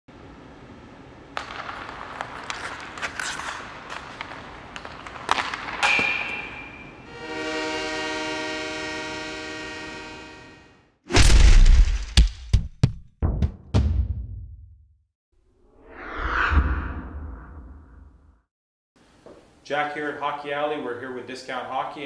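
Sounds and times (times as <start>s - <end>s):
horn-like blast: 7.0s - 10.8s.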